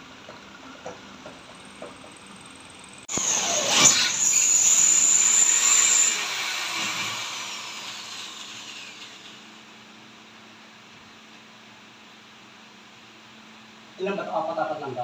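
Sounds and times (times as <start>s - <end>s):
power drill whining: 3.1s - 9.5s.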